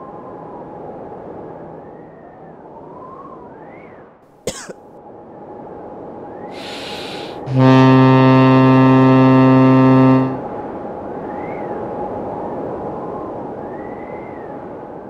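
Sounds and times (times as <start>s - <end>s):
short hiss: 6.6s - 7.5s
low horn blast: 6.6s - 10.5s.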